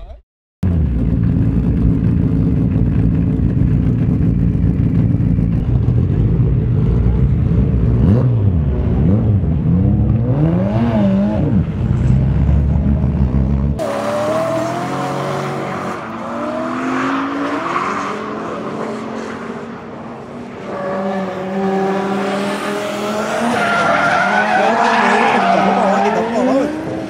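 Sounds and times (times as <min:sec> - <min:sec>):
car engine revving: 0:00.7 - 0:20.6
tyres skidding and squealing: 0:08.8 - 0:27.0.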